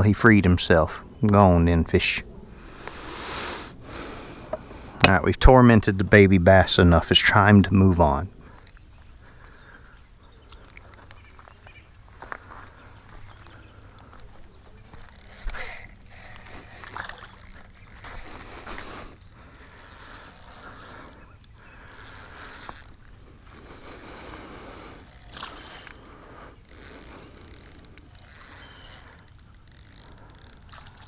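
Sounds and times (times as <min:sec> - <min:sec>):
fishing reel whirring and clicking: 0:14.7 - 0:31.0.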